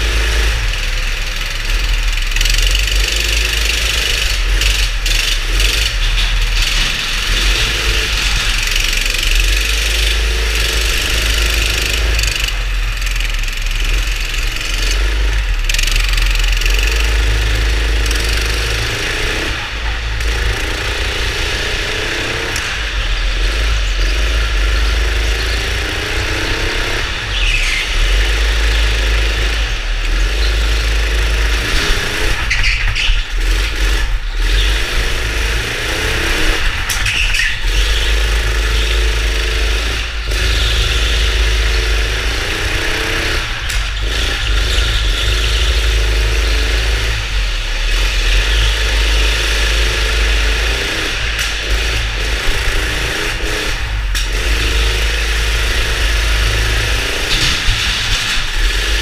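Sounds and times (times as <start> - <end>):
go-kart engine revving: 0.0 - 59.0
high squeals: 21.1 - 33.6.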